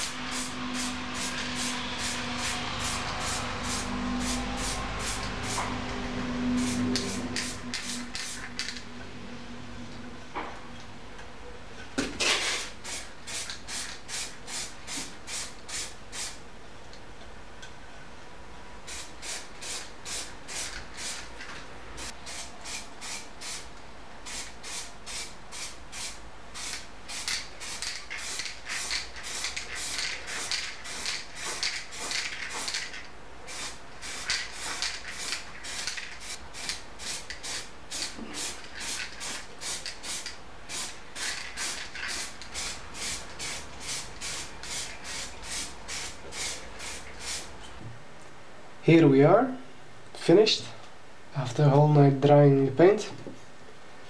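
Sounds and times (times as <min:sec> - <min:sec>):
aerosol spray hissing spurts: 0:33.5 - 0:47.5.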